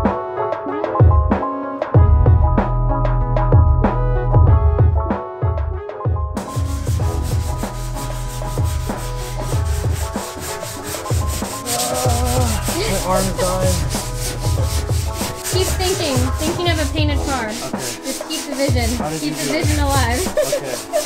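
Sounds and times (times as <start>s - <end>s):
background music with beat: 0.0s - 21.0s
hand sanding car bodywork: 6.4s - 21.0s
person singing: 11.3s - 14.0s.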